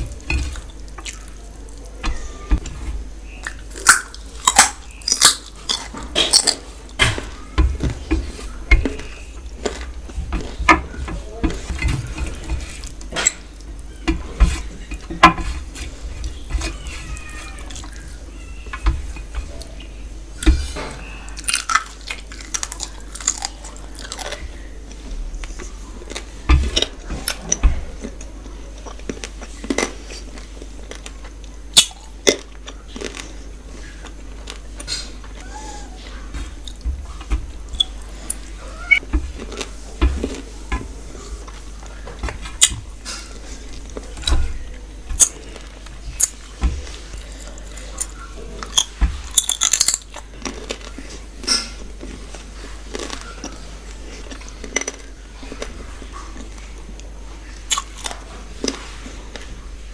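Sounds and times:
chewing and biting food: 0:03.4 - 0:13.7, 0:21.3 - 0:35.4, 0:36.4 - 0:59.5.

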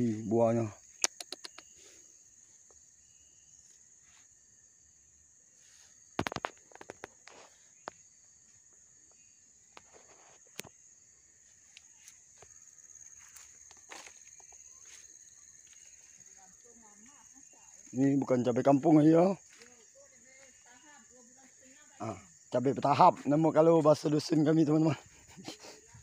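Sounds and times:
insects droning: 0:00.0 - 0:26.0
footsteps through plants: 0:11.4 - 0:16.2, 0:19.4 - 0:20.8.

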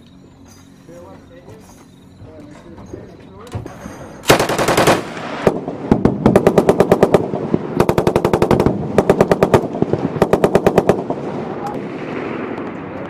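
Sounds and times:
machine gun bursts: 0:04.2 - 0:11.2.

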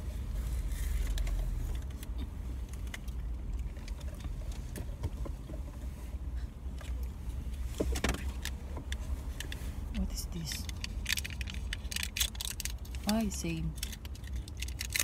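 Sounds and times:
car cabin rumble: 0:00.0 - 0:13.6
food wrappers crinkling: 0:10.6 - 0:15.0.

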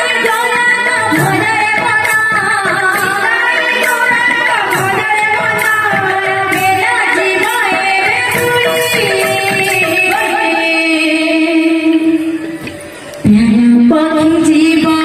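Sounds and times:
hand-played barrel drums: 0:00.0 - 0:11.6
woman singing: 0:00.0 - 0:12.6, 0:13.2 - 0:15.0.

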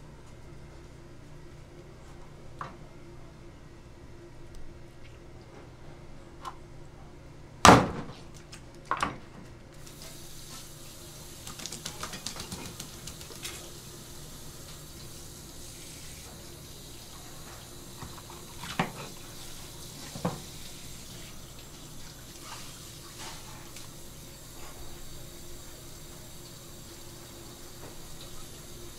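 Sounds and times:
spray faucet running: 0:09.8 - 0:28.9.

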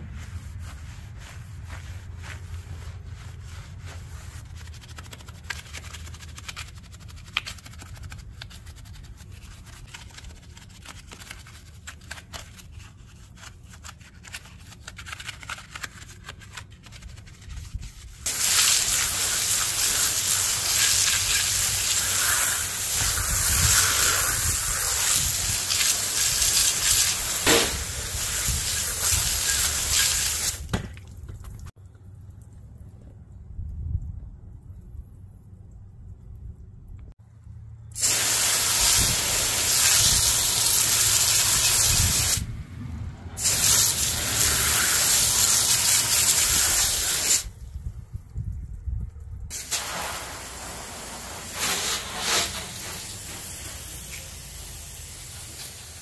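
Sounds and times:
brush scrubbing a wheel: 0:00.0 - 0:30.6, 0:38.0 - 0:42.4, 0:43.4 - 0:47.4, 0:49.8 - 0:54.3
water spray: 0:18.2 - 0:30.7, 0:38.0 - 0:42.4, 0:43.4 - 0:47.5, 0:49.5 - 0:56.0.

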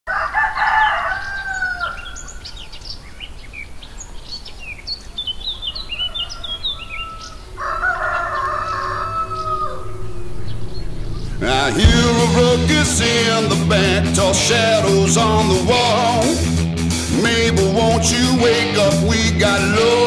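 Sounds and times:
rooster crowing: 0:00.1 - 0:02.2, 0:05.6 - 0:12.4.

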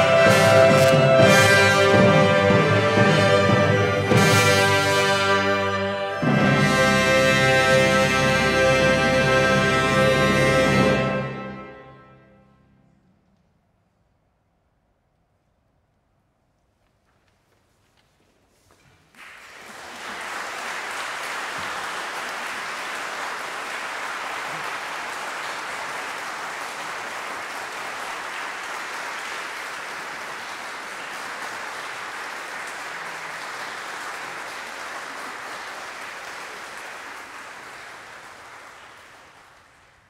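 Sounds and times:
audience applauding: 0:00.0 - 0:06.3, 0:19.0 - 0:40.0.

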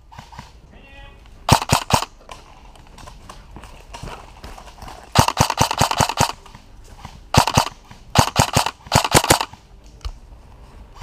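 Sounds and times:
airsoft gun firing bursts: 0:01.5 - 0:02.1, 0:05.1 - 0:06.5, 0:07.3 - 0:09.6.

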